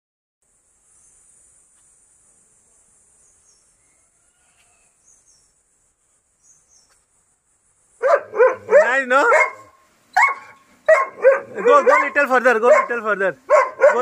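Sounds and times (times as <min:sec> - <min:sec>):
insect drone: 0:00.4 - 0:08.0.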